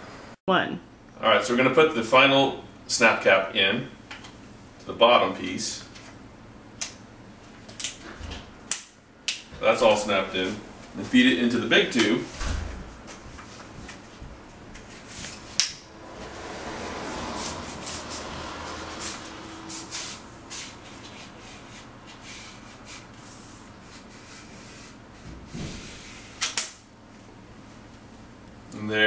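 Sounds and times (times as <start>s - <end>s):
tubes sliding and rubbing: 14.9s - 25.0s.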